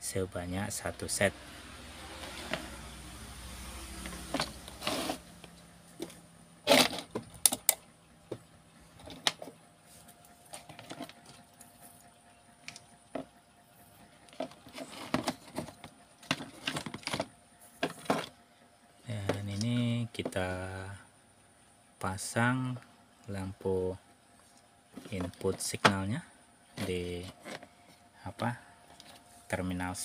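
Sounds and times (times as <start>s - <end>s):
faint low hum: 0.0s - 30.0s
wires and parts rattling on workbench: 2.1s - 2.8s, 4.0s - 11.8s, 14.2s - 18.4s, 24.9s - 28.0s.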